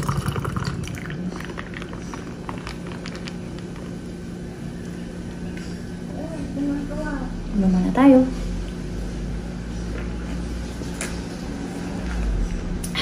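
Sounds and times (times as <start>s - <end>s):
soda pouring and fizzing: 0.0s - 3.4s
steady low hum: 0.0s - 13.0s
small crackles: 1.7s - 3.9s.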